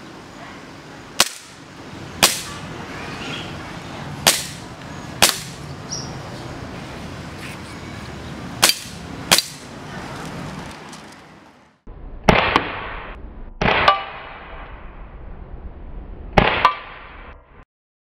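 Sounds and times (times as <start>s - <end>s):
airsoft pistol shots: 1.2s - 1.6s, 2.2s - 2.6s, 4.2s - 4.6s, 5.2s - 5.6s, 8.6s - 9.6s, 12.3s - 14.6s, 16.4s - 17.1s.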